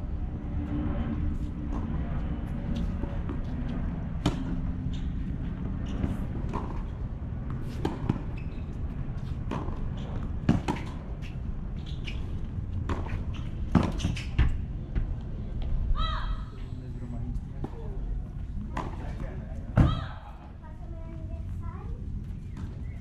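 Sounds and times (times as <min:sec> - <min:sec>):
racket hitting tennis ball: 0:07.6 - 0:08.3, 0:10.4 - 0:11.4, 0:12.8 - 0:14.6, 0:18.7 - 0:19.2.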